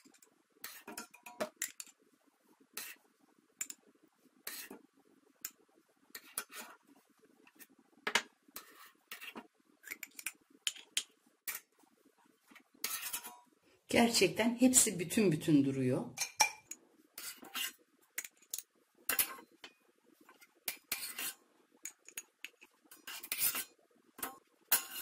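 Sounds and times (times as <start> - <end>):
metal spoon clinking on pot and jars: 16.2 - 16.8.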